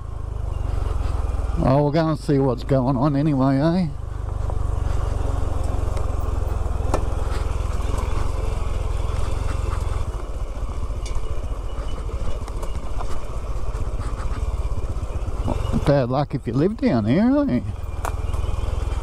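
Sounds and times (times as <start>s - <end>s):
motorcycle engine rumbling: 0.0s - 19.0s.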